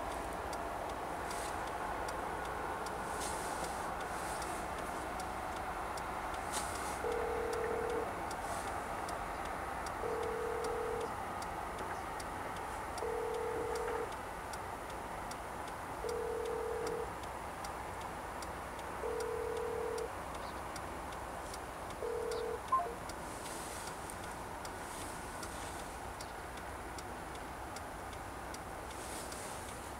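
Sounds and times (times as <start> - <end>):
faint regular ticking: 0.0 - 29.9
low electronic beep: 7.1 - 8.1, 10.0 - 11.1, 19.0 - 20.0, 22.0 - 23.0.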